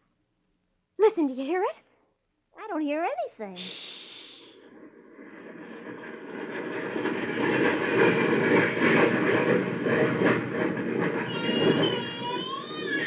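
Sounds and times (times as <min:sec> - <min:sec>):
jet plane roaring overhead: 0:03.6 - 0:13.0.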